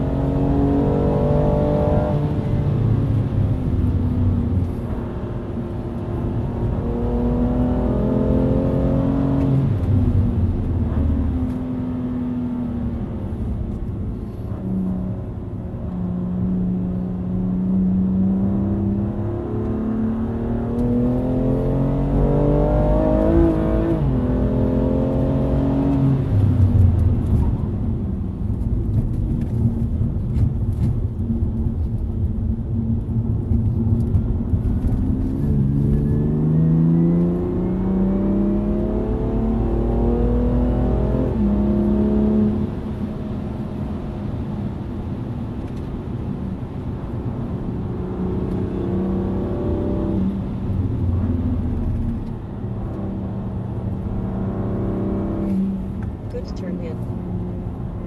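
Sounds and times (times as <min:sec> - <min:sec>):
road and tyre noise: 0:00.0 - 0:58.0
car engine revving: 0:15.8 - 0:27.7, 0:33.1 - 0:43.4, 0:46.7 - 0:58.0.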